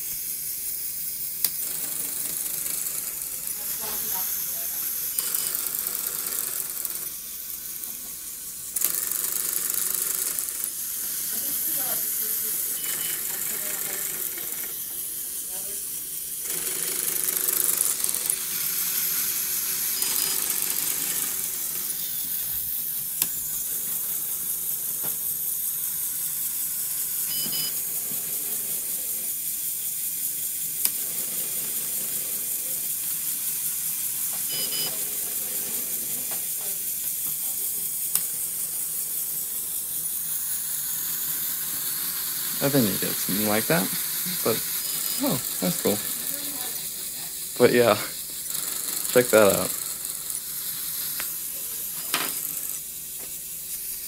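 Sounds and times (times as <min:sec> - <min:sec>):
motors and gears whirring: 0:00.0 - 0:54.0.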